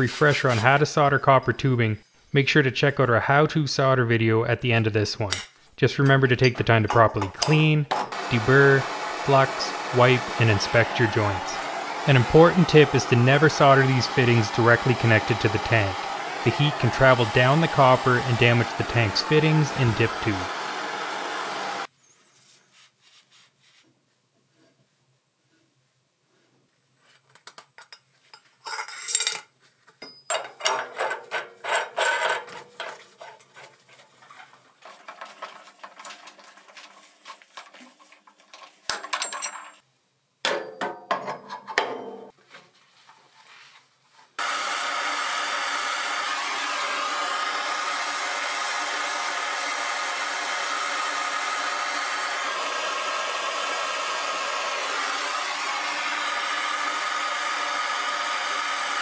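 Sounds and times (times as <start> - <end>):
gas torch hissing: 8.2 - 21.9
metal pipe fittings clinking: 27.8 - 33.4, 38.9 - 39.8.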